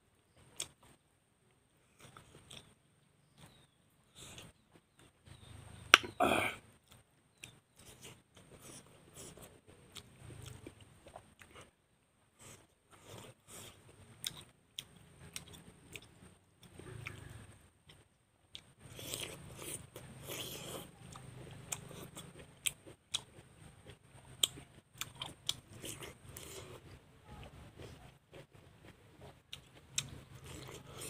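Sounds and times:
crunching bites and chewing: 1.8s - 6.2s, 12.4s - 27.0s, 27.7s - 31.0s
mouth clicks: 5.3s - 7.6s.

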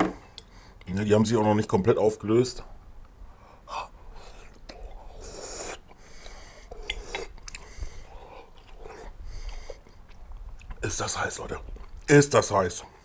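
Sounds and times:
man chewing: 4.1s - 10.9s, 11.6s - 12.1s
puffs of breath: 7.6s - 9.8s.

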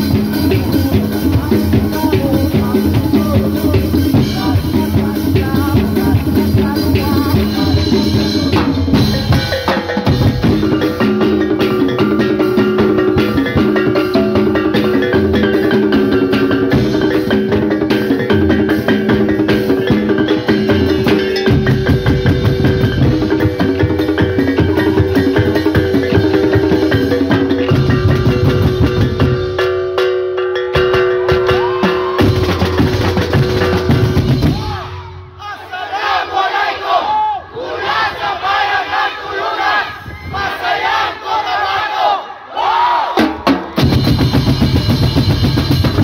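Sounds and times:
gongs struck in melodic patterns: 0.0s - 34.6s
drum beating: 0.0s - 37.0s, 43.1s - 46.0s.

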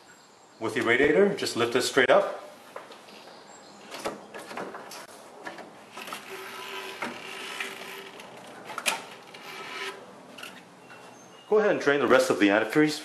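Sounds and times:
plastic scraping and rubbing: 6.0s - 10.6s.

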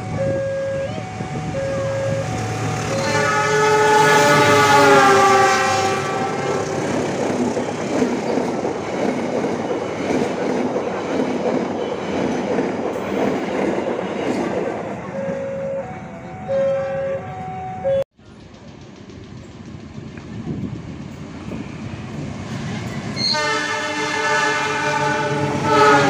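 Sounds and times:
level crossing warning signal: 0.0s - 6.8s, 14.8s - 18.0s
locomotive horn blast: 0.0s - 7.0s, 14.9s - 18.0s, 23.2s - 26.0s
train wheels rumbling on rails: 0.0s - 26.0s.

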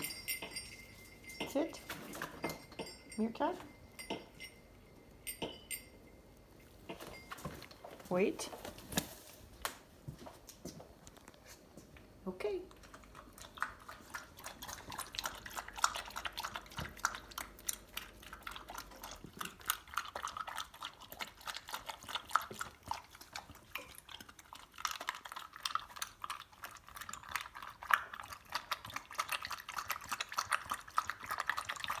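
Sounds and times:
kibble clinking against metal bowl: 0.0s - 7.9s
dog crunching kibble: 12.7s - 32.0s.

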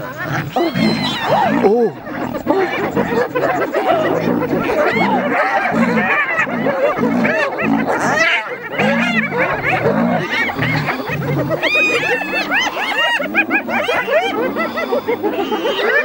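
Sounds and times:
hyenas giggling and whooping: 0.0s - 16.0s
deep growls: 0.2s - 13.8s.

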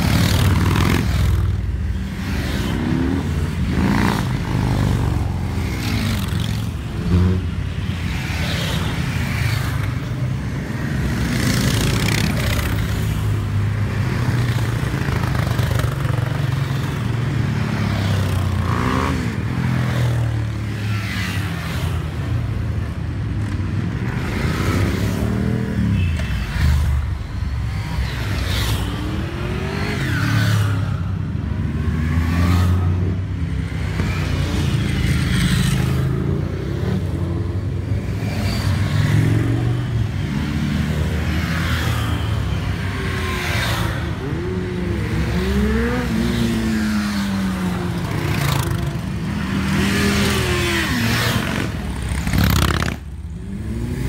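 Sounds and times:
motorcycles revving past: 0.0s - 9.9s, 10.8s - 13.4s, 27.7s - 54.0s
many engines running: 0.0s - 54.0s.

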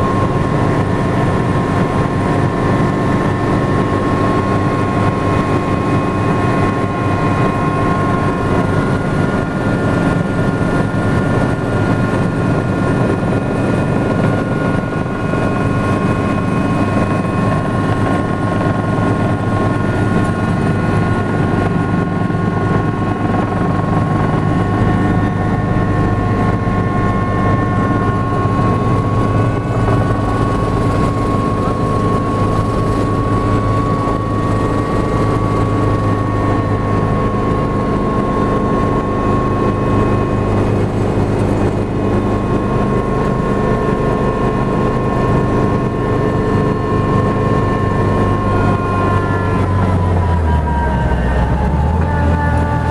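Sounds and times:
helicopter engine whine: 0.0s - 52.9s
helicopter rotor drone: 0.0s - 52.9s.

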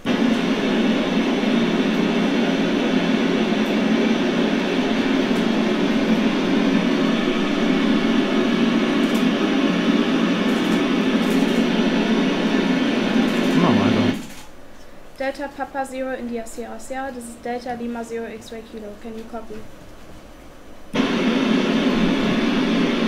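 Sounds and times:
radio static hiss: 0.0s - 14.4s, 21.0s - 23.0s.

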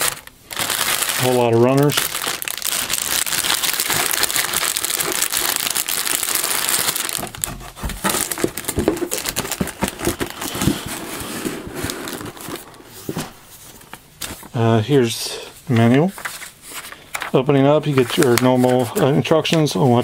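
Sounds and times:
plastic bags crinkling: 0.0s - 14.6s, 15.8s - 19.9s
paper rustling: 0.0s - 14.8s, 15.6s - 20.0s.

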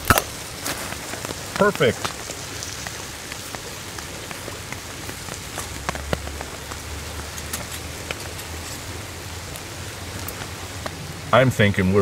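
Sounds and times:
rain pattering on tarp: 0.0s - 12.0s
raindrop ticks: 0.0s - 12.0s.

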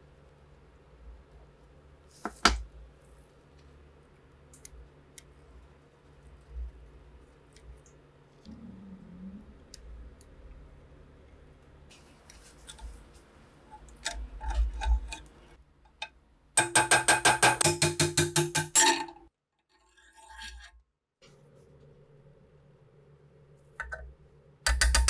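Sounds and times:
metal scraping and clicking: 13.8s - 16.1s
hammer tapping steel punch: 16.6s - 18.8s, 24.6s - 25.0s.

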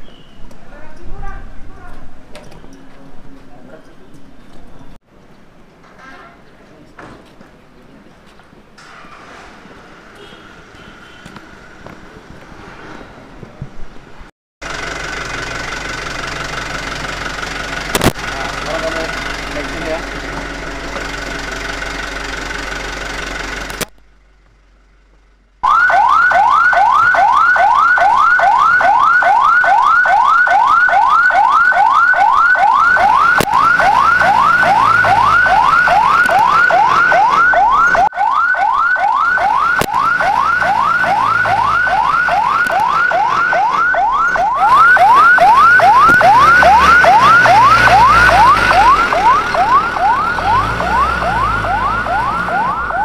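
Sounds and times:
truck engine idling: 14.6s - 26.6s
fire truck siren yelping: 25.6s - 53.0s.

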